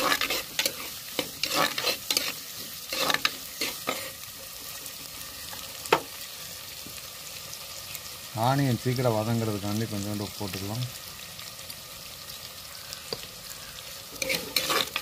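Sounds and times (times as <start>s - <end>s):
ladle scraping and stirring: 0.0s - 4.2s, 14.1s - 15.0s
food sizzling in oil: 0.0s - 15.0s.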